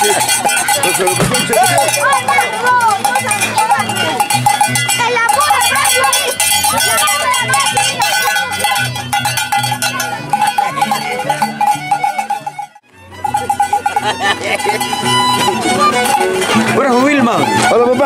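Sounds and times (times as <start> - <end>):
steady ringing tone: 0.0 - 14.1
bells jangling: 0.0 - 16.6
voices of walkers: 0.0 - 18.0.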